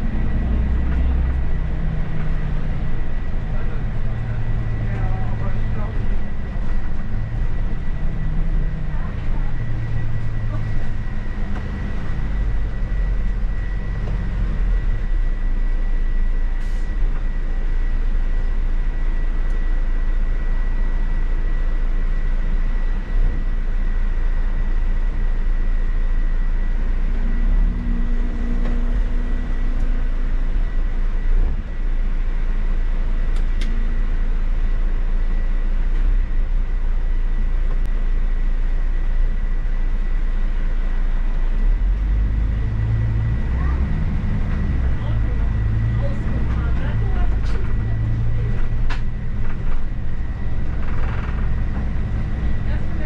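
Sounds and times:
bus engine and road rumble: 0:00.0 - 0:53.0.

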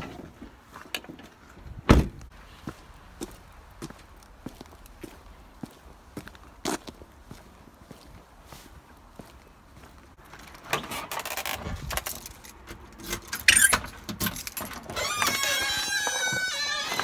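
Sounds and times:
door squeaking open: 0:13.3 - 0:13.9, 0:14.7 - 0:17.0.

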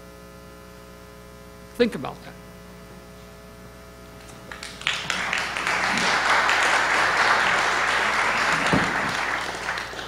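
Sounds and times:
audience applauding: 0:04.5 - 0:10.0.

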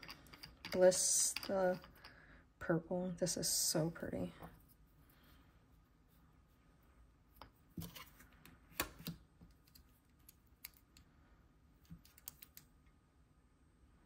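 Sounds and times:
tools clicking and tapping on table: 0:00.0 - 0:02.2.

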